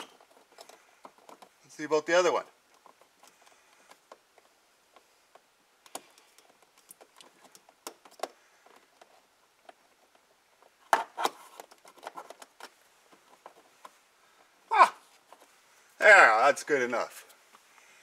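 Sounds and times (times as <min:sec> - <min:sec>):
rustling: 0:00.0 - 0:18.0
plastic tool clicking and scraping: 0:02.7 - 0:14.0.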